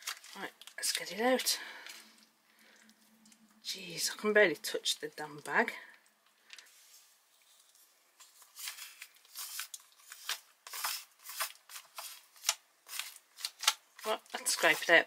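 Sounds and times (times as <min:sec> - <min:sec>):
spoon scraping pouch: 0:06.7 - 0:15.0
foil pouch crinkling: 0:07.4 - 0:14.9.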